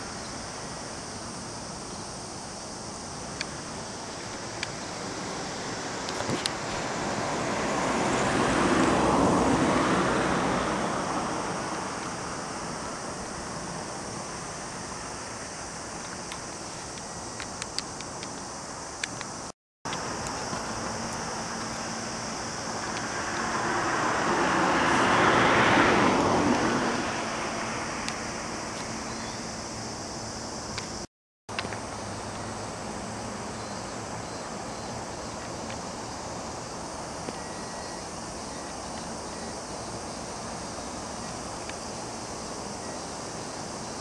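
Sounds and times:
steady background hum: 0.0s - 24.7s
steady outdoor hiss: 0.0s - 44.0s
vehicle passing by: 4.5s - 14.0s, 20.0s - 29.2s.

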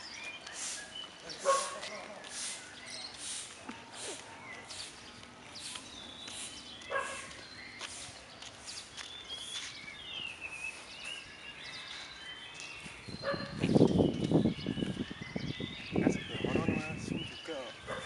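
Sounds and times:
birds chirping: 0.0s - 18.0s
soft repeating hissing: 0.5s - 1.0s, 1.6s - 6.7s.

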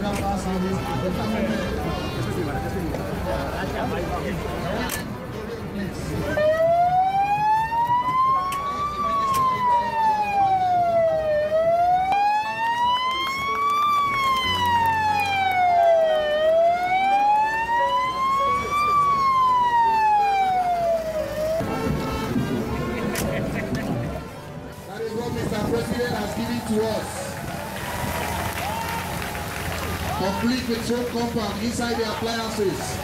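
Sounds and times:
fire truck siren wailing: 6.2s - 23.3s.

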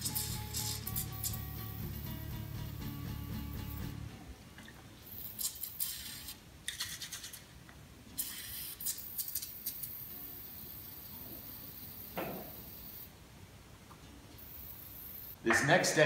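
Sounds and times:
aerosol spray hissing: 8.2s - 13.1s.

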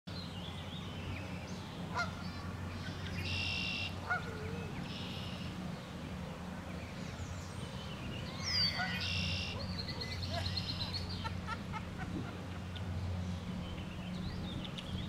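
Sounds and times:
steady low hum: 0.1s - 15.0s
geese calling: 1.9s - 5.5s, 8.4s - 11.3s.

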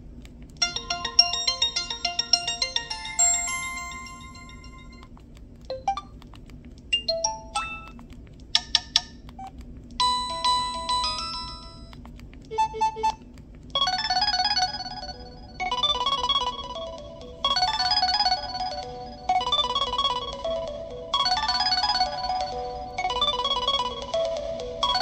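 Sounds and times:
phone ringtones through small speaker: 0.6s - 5.1s.

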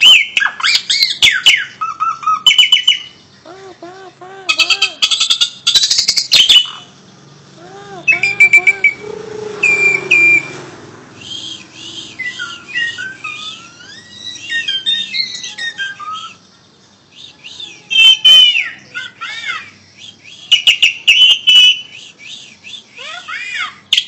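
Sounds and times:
starling singing: 0.0s - 24.0s.

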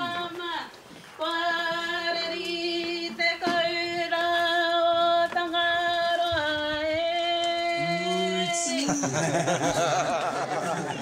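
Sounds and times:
person singing long held notes: 7.4s - 8.9s.

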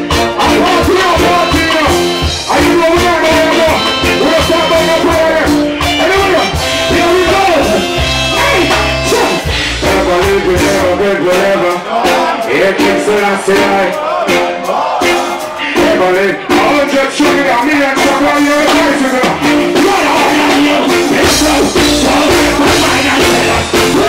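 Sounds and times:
heavy bass note: 0.0s - 11.3s
live reggae band: 0.0s - 24.0s
man singing into microphone: 0.1s - 24.0s.

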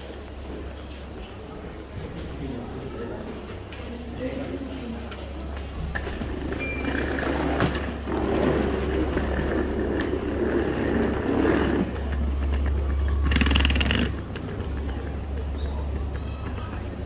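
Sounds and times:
suitcase wheels rolling on floor: 0.0s - 17.0s.

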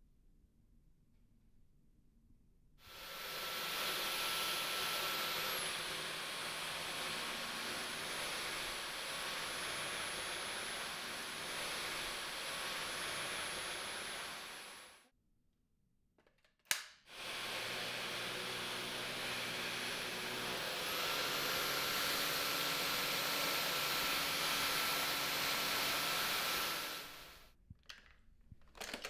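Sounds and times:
vacuum cleaner running: 2.9s - 15.1s, 17.1s - 27.5s.

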